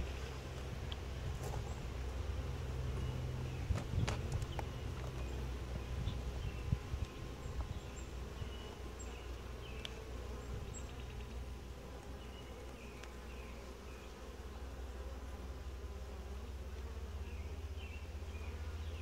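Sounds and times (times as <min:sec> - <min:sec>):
bees humming: 0:00.0 - 0:19.0
light clicks of hive tool: 0:07.0 - 0:07.8, 0:09.3 - 0:10.1, 0:12.0 - 0:13.2.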